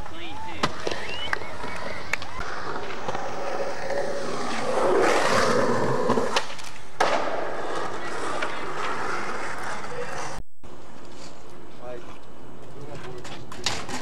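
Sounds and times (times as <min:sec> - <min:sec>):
skateboard wheels rolling on pavement: 0:00.0 - 0:14.0
skateboard clacks: 0:13.1 - 0:14.0.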